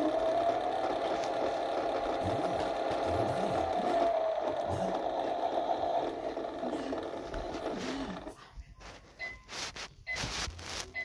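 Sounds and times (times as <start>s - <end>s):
small motor whine: 0.0s - 8.4s.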